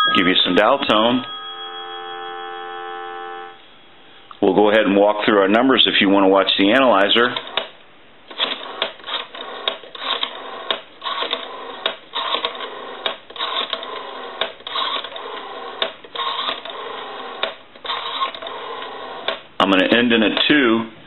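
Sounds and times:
steady phone line tone: 0.0 - 4.3
rotary dial whirring and clicking: 8.3 - 19.4.

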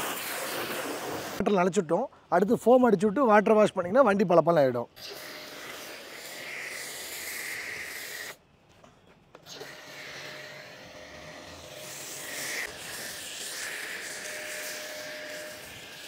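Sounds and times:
foam cannon spraying hiss: 0.0 - 1.4, 11.8 - 16.0.

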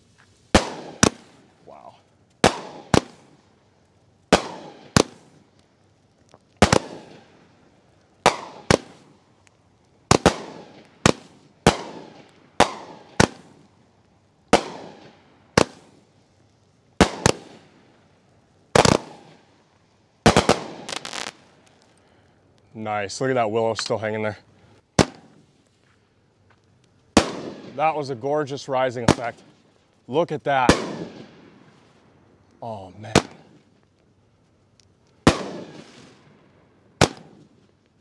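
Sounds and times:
firework shots banging: 0.5 - 1.5, 2.4 - 3.4, 4.3 - 5.4, 6.6 - 7.3, 8.2 - 9.2, 10.1 - 13.7, 14.5 - 16.0, 17.0 - 17.8, 18.7 - 19.5, 20.2 - 21.8, 25.0 - 25.4, 27.1 - 28.1, 29.0 - 29.6, 30.6 - 31.7, 33.1 - 33.7, 35.2 - 36.4, 37.0 - 37.6.

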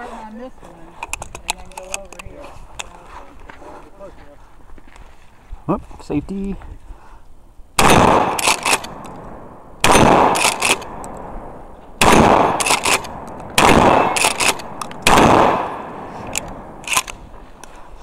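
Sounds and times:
shotgun shots: 7.8 - 17.2.

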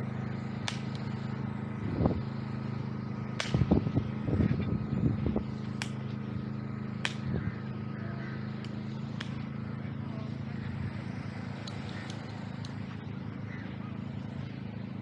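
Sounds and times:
low engine hum: 0.0 - 15.0
sharp clicks: 0.6 - 1.1, 5.7 - 6.1, 7.0 - 7.3, 8.6 - 9.5, 11.6 - 12.9.

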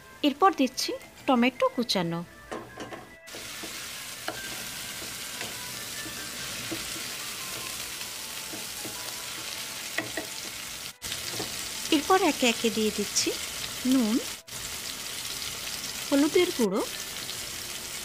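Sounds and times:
tomatoes sizzling in oil: 0.2 - 18.0.

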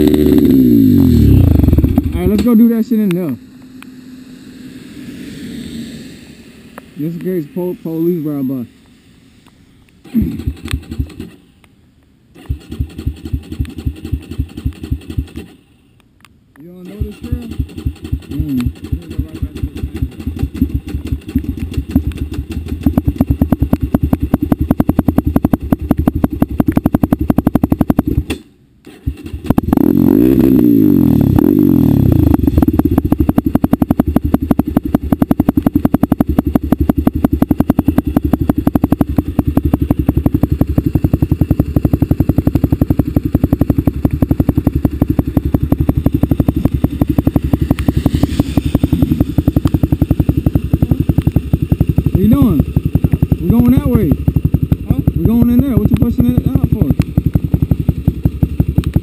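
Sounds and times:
quad engine idling and revving: 0.0 - 5.2, 10.0 - 11.4, 12.3 - 15.7, 16.6 - 59.0.

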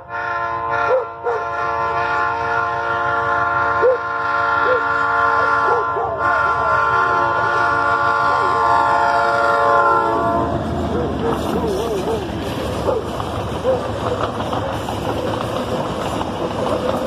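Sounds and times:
locomotive air horn blast: 0.0 - 10.8
dogs barking: 0.9 - 1.5, 3.8 - 6.4, 10.8 - 14.3.

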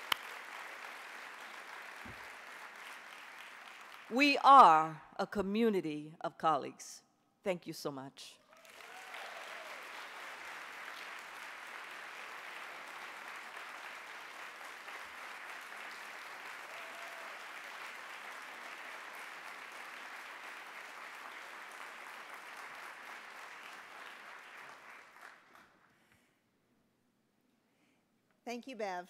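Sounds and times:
audience applauding: 0.0 - 4.2, 8.4 - 25.9.

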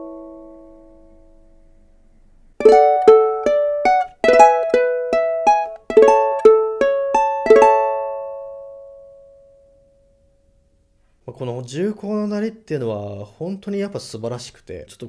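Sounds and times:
ukulele chords strummed: 0.0 - 1.5, 2.6 - 10.2.

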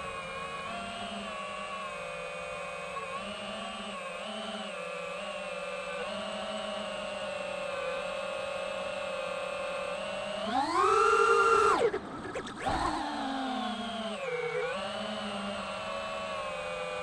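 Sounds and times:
drone propellers whining: 10.4 - 17.0.

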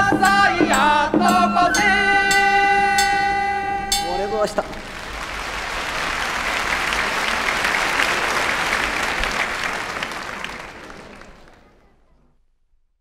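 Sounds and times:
audience applauding: 4.6 - 12.2.

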